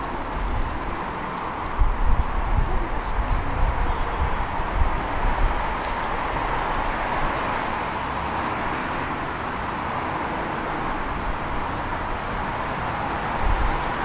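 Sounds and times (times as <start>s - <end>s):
tram wheels rumbling on rails: 0.0s - 6.6s.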